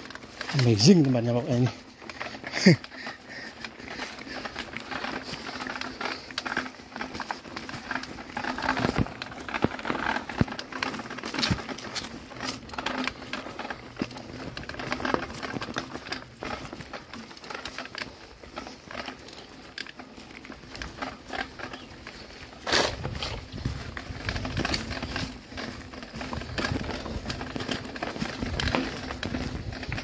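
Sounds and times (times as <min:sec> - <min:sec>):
bike rattling: 0:00.0 - 0:30.0
bike tyres crunching: 0:00.0 - 0:30.0.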